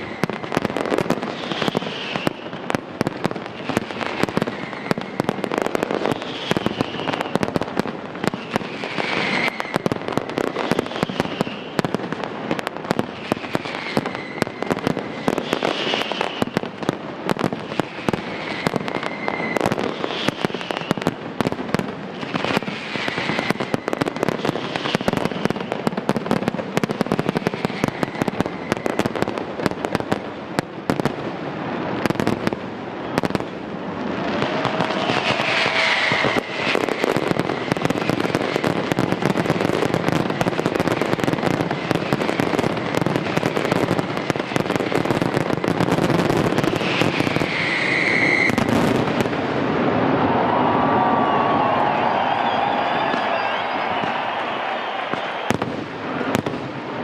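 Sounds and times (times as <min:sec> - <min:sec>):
fireworks bursting and crackling: 0:00.0 - 0:57.0
falling whistle tone: 0:13.4 - 0:16.5, 0:18.2 - 0:21.0, 0:34.3 - 0:37.8, 0:46.8 - 0:48.7, 0:50.4 - 0:55.6.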